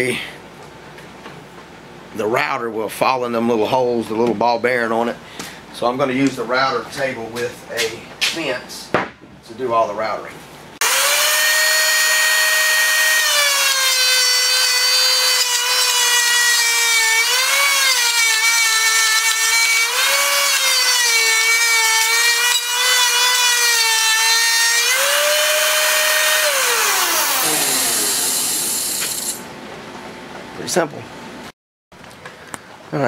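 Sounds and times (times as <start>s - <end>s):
router bit cutting wood: 10.8s - 29.4s
router motor whining: 10.8s - 29.4s.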